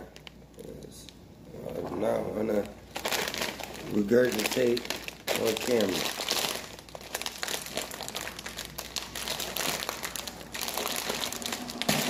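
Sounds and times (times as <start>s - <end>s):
foil snack bag crinkling: 1.8s - 12.0s.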